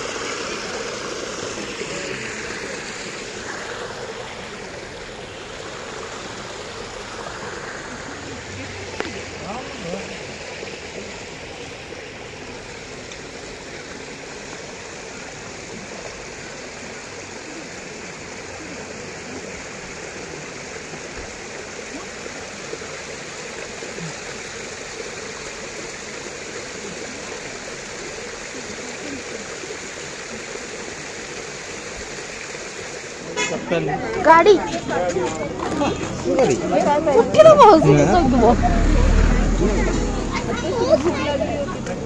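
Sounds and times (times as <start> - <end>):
water running over rocks: 0.0 - 42.0.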